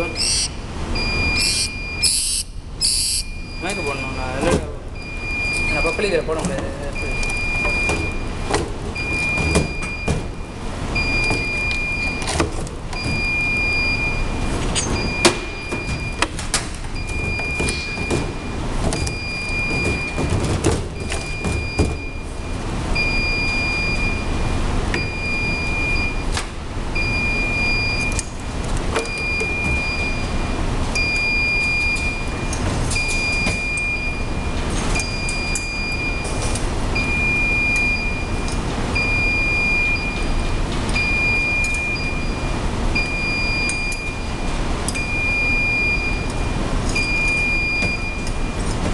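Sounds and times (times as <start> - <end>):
high electronic beeps: 0.0 - 4.3
steady background noise: 0.0 - 48.9.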